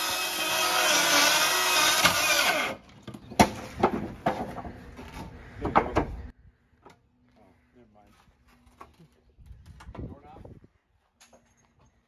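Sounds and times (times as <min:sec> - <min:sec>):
wood cracking and knocking: 0:02.9 - 0:06.2.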